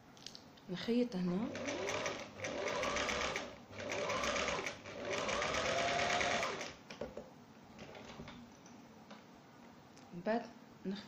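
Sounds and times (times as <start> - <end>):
sewing machine stitching: 1.4 - 6.8.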